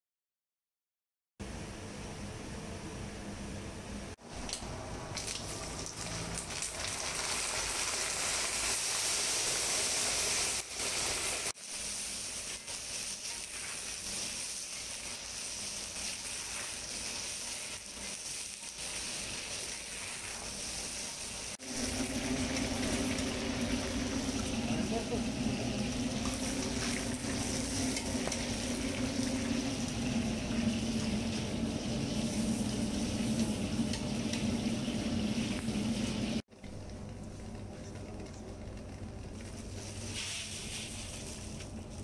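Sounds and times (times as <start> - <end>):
chillies sizzling in hot oil: 4.3 - 36.4, 39.4 - 42.0.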